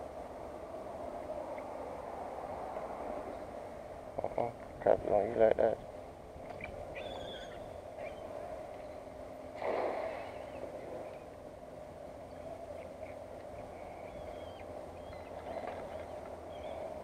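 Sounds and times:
faint bird chirps: 6.6s - 9.0s, 12.3s - 17.0s.

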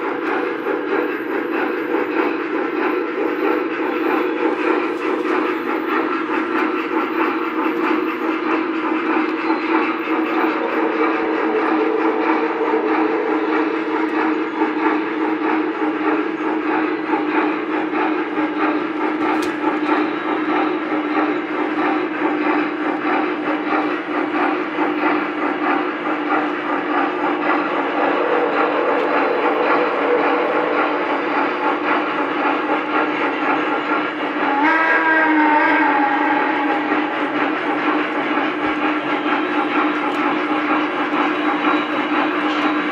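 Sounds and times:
electronic steam sound effects: 0.0s - 20.9s, 25.0s - 34.7s
model train motor hum: 0.0s - 42.9s
wheels clicking on rails: 0.0s - 42.9s.

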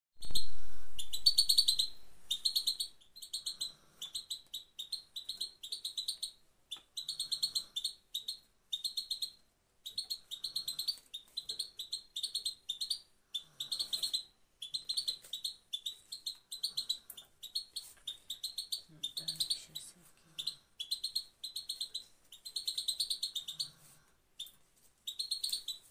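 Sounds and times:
goldfinch calling: 0.2s - 6.3s.

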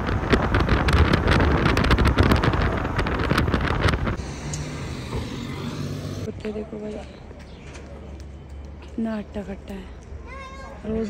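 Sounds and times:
wind buffeting microphone: 0.0s - 6.4s
car road noise: 0.0s - 7.4s.

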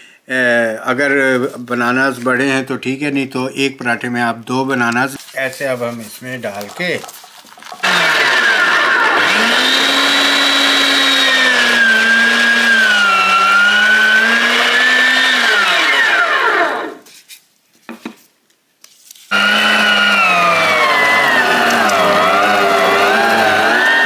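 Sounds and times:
electric meat grinder whining: 7.8s - 17.0s, 19.3s - 24.0s.

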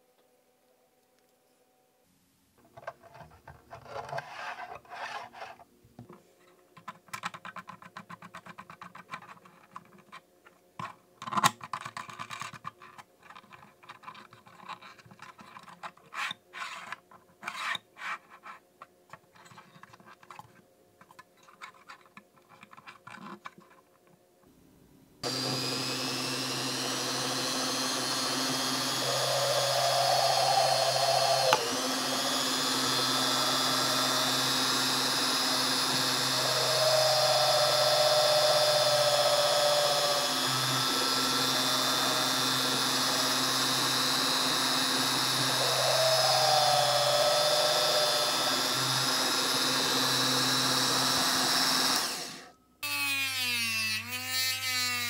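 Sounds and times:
plastic parts clicking and tapping: 6.0s - 17.8s, 18.8s - 24.2s
drill press drilling metal: 25.2s - 52.5s.

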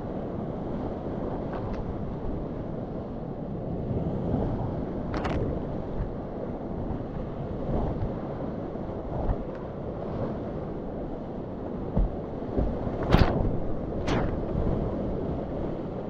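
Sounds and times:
waves splashing: 7.2s - 16.0s.

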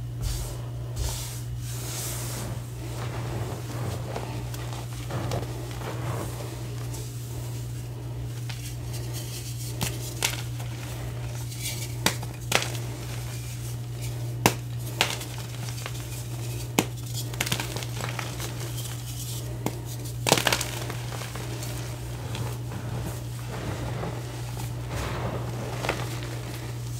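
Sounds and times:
steady low hum: 0.0s - 26.9s
chalk crumbling with snaps: 8.4s - 22.6s.

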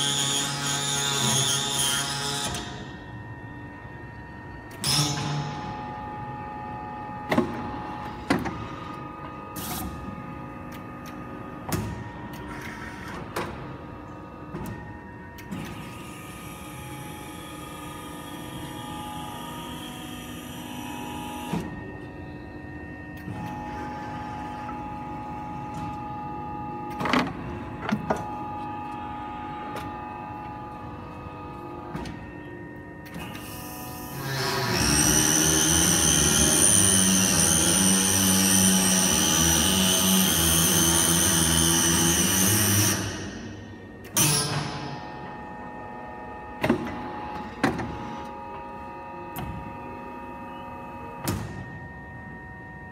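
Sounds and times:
machine hum and whine: 0.0s - 52.9s.

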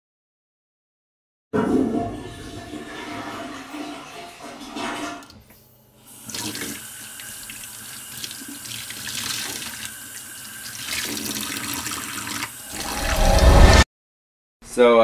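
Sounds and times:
low swell: 12.7s - 13.8s.

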